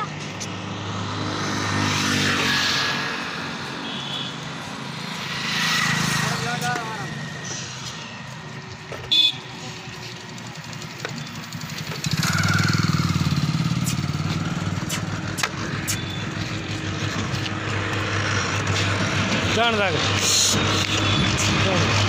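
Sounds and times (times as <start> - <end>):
motorcycle engine running: 8.4 - 22.0
horn toot: 9.1 - 9.6.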